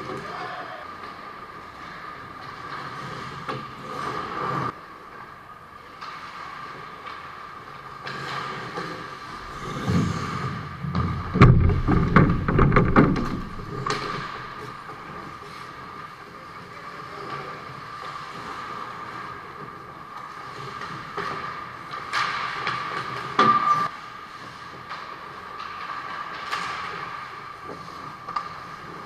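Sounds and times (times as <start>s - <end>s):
skates scraping ice: 0.0s - 29.0s
hockey sticks clacking: 5.9s - 16.0s, 18.0s - 29.0s
sharp knocks and thumps: 9.2s - 14.8s
steady hum: 9.2s - 14.8s.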